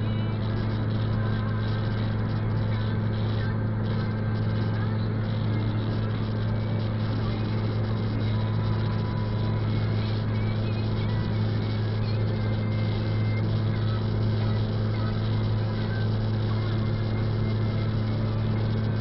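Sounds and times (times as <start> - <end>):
car engine hum: 0.0 - 19.0.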